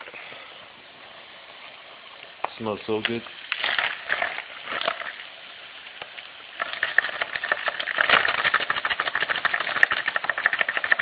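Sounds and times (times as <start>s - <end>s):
steaks sizzling in frying pan: 1.1s - 8.0s.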